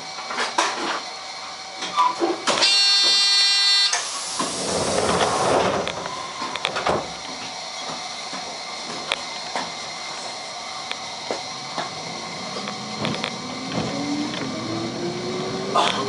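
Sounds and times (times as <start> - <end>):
loud buzzer: 2.5 - 4.0
compressed air hissing: 3.9 - 6.6.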